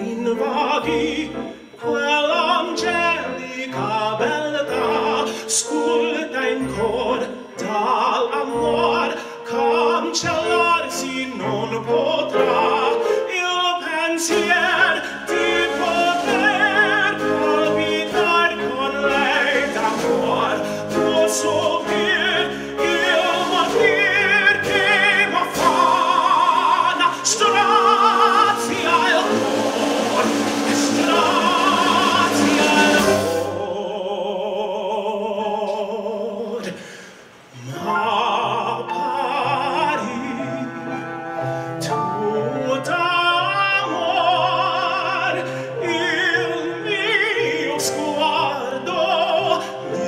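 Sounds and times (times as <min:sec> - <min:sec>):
cello: 0:00.0 - 0:34.2
man singing opera: 0:00.0 - 0:50.0
piano: 0:00.0 - 0:50.0
double bass: 0:14.3 - 0:33.8.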